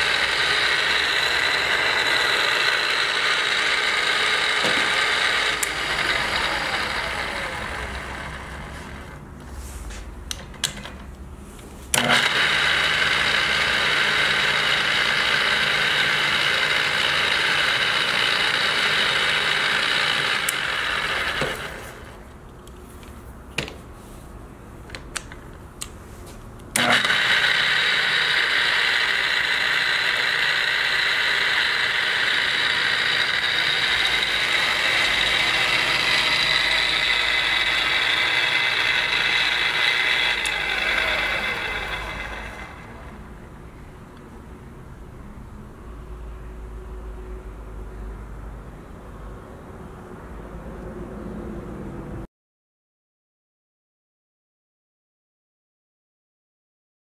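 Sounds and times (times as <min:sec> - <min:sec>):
drill press motor whining: 0:00.0 - 0:09.2, 0:11.9 - 0:22.3, 0:26.7 - 0:43.4.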